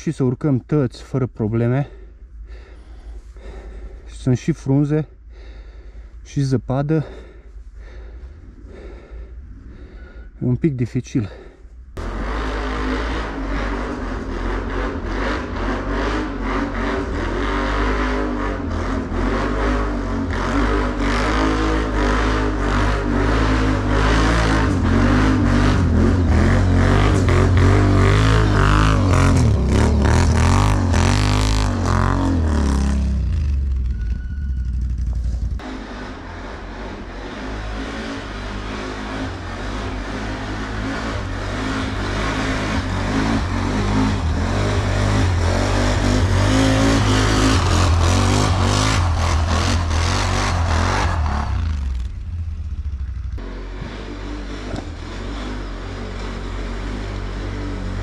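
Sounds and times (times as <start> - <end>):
atv engine revving: 12.0 - 58.0.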